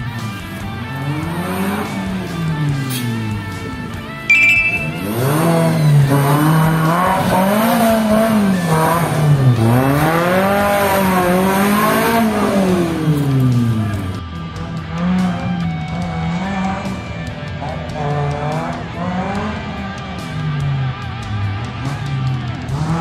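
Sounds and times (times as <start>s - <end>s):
buggy engine revving: 0.0s - 23.0s
brief high squeal: 4.3s - 5.1s.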